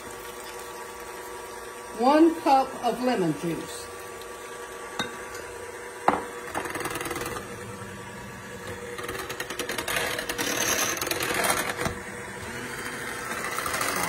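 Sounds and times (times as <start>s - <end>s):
hand mixer whirring: 0.0s - 14.0s
glass clink: 5.0s - 5.5s.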